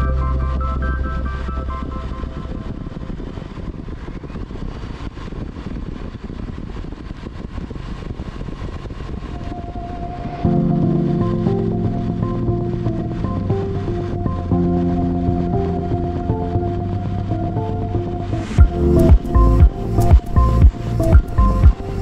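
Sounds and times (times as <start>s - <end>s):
background music: 0.0s - 3.4s, 9.4s - 22.0s
wind rushing over microphone: 0.0s - 22.0s.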